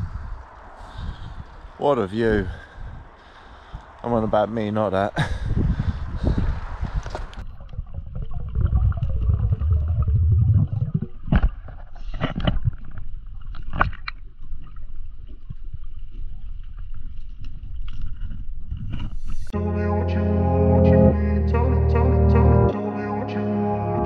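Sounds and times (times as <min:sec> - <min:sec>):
underwater gurgling rumble: 0:07.3 - 0:19.1.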